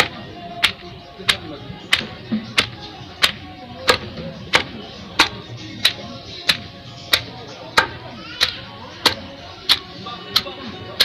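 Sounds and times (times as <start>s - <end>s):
pestle pounding in wooden mortar: 0.0s - 11.0s.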